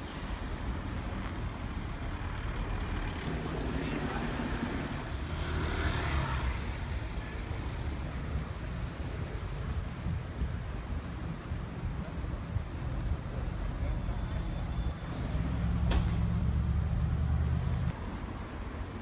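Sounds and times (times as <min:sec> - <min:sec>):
low traffic rumble: 0:00.0 - 0:19.0
vehicle passing by: 0:02.4 - 0:07.0.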